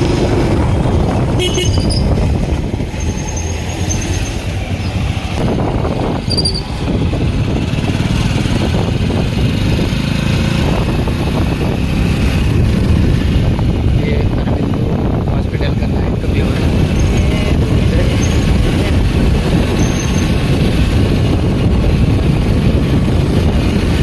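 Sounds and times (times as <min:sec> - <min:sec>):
road noise: 0:00.0 - 0:24.0
motorcycle engine running: 0:04.1 - 0:24.0.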